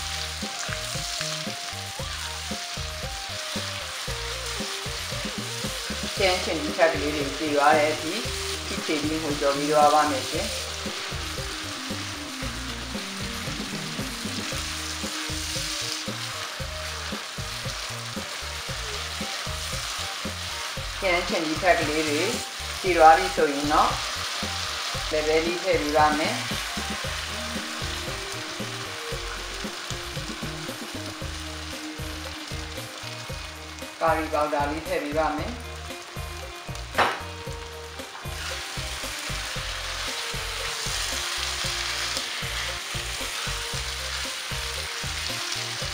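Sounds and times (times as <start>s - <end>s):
spatula stirring in wok: 0.0s - 34.2s, 35.6s - 45.9s
food sizzling in oil: 0.0s - 45.9s
sharp knock: 37.0s - 37.3s.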